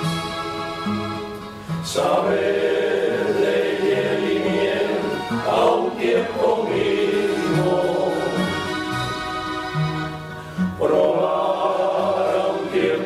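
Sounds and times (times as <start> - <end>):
choir singing: 1.9 - 9.8, 10.7 - 13.0.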